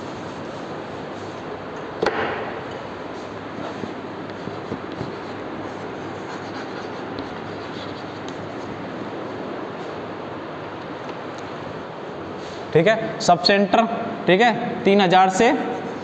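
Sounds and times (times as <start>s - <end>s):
steady background noise: 0.0s - 16.0s
sharp knock: 2.0s - 2.6s
chalk writing on a chalkboard: 3.6s - 8.8s, 15.6s - 16.0s.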